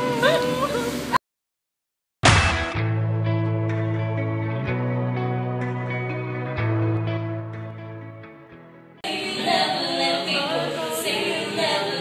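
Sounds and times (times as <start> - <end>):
soft instrumental music: 2.8 - 11.8.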